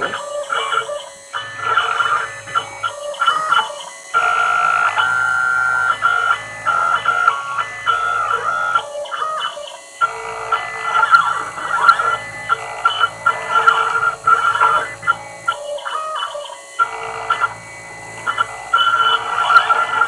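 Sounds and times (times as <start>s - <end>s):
low machine hum: 0.0s - 20.0s
stepper motors whining: 0.0s - 20.0s.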